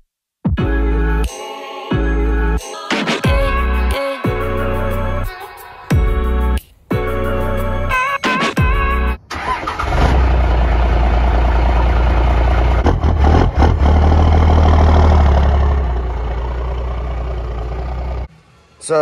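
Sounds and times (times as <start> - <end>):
truck engine starting and idling: 9.0 - 18.6.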